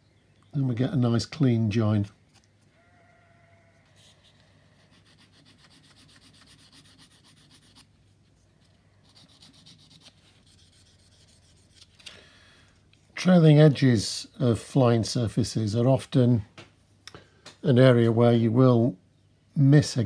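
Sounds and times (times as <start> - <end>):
sanding stick scraping plastic: 4.0 - 7.9, 9.0 - 11.9.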